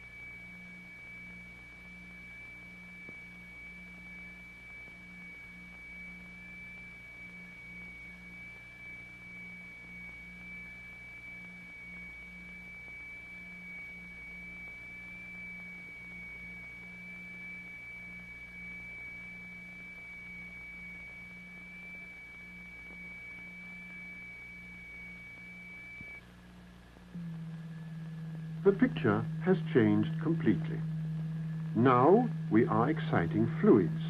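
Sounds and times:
two electronic tones beating: 0.0s - 26.2s, 27.1s - 34.0s
thin steady high tone: 0.0s - 34.0s.

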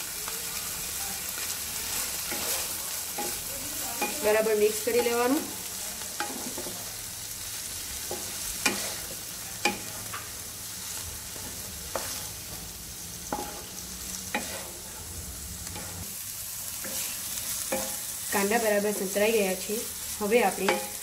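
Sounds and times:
onions sizzling in a pan: 0.0s - 21.0s
spatula knocking and scraping pan: 6.2s - 6.8s, 8.0s - 10.3s, 11.4s - 12.7s, 13.3s - 13.7s, 14.3s - 14.8s, 16.8s - 18.1s, 20.5s - 21.0s.

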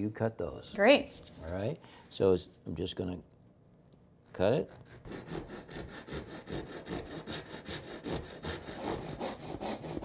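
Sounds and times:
hand saw cutting board: 4.7s - 10.0s.

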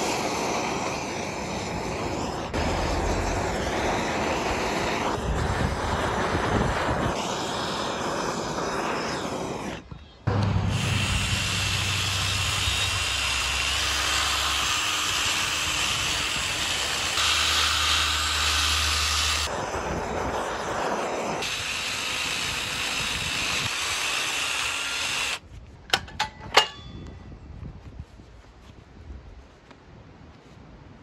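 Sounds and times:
drill brush scrubbing wood: 2.1s - 9.8s, 10.6s - 25.4s.

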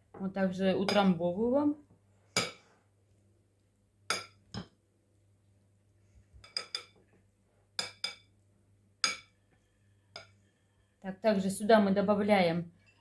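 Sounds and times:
metal spoon clinking ceramic bowl: 6.4s - 7.0s, 7.8s - 8.3s, 9.0s - 9.4s.

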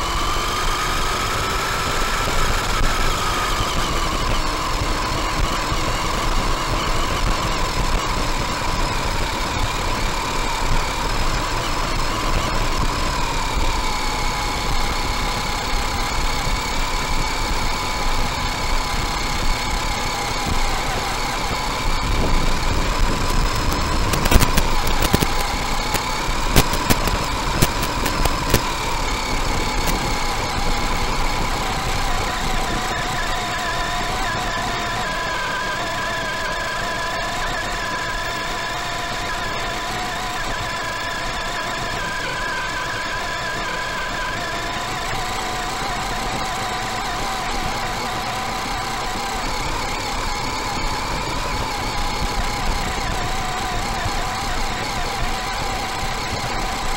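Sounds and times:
electric motor and gear whine: 0.0s - 56.9s
sharp clicks and knocks: 21.4s - 32.0s.

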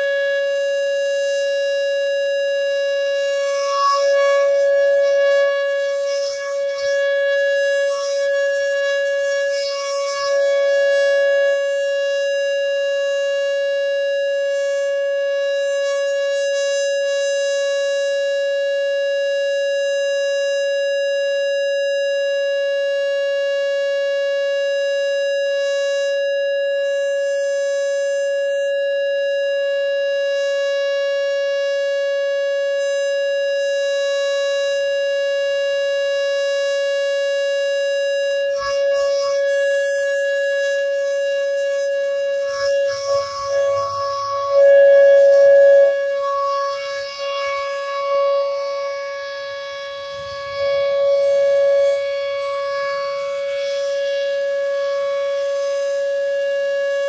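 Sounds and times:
overlaid tone: 0.0s - 17.6s, 38.0s - 54.9s
warning siren steady tone: 0.0s - 57.0s.

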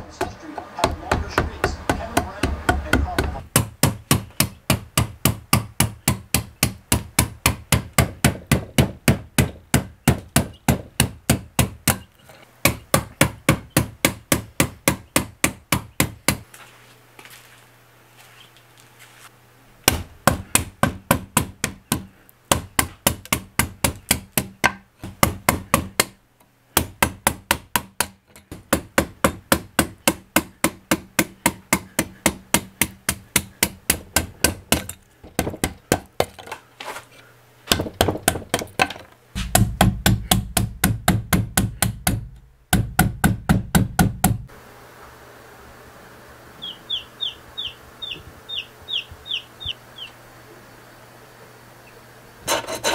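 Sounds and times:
mallet striking wood chisel: 0.2s - 16.5s, 19.8s - 26.2s, 26.8s - 36.5s, 37.7s - 44.5s.

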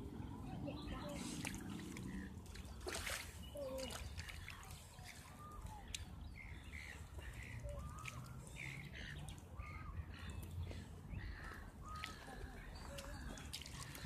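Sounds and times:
birds chirping and whistling: 3.3s - 10.5s.

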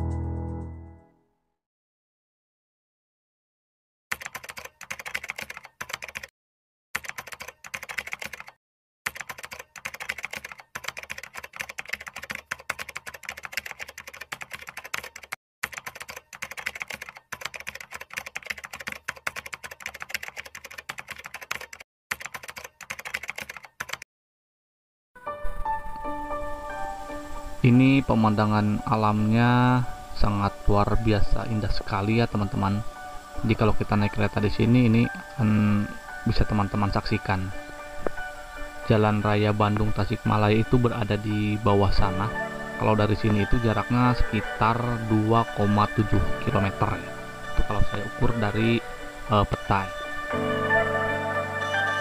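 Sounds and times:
keyboard typing clicks: 4.1s - 6.3s, 7.0s - 24.0s.

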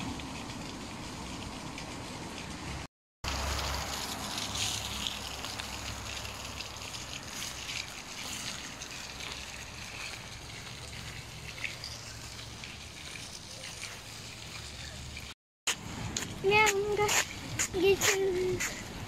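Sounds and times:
water running and splashing: 0.0s - 19.0s.

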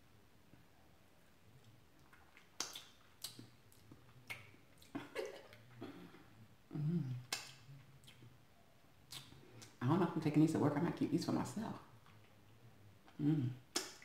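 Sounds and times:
lip smacks and tongue clicks: 1.6s - 5.7s, 7.2s - 8.4s, 9.1s - 9.8s, 12.0s - 14.0s
person humming: 6.7s - 7.4s, 13.2s - 13.6s.

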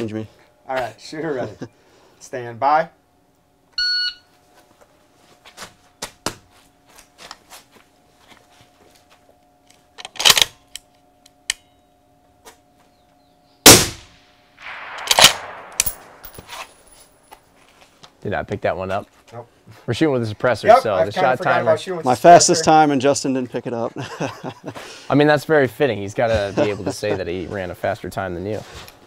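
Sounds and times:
shot timer beep: 3.8s - 4.3s
suppressed rifle shot: 13.7s - 16.4s
rifle handling clicks and knocks: 15.0s - 17.4s.

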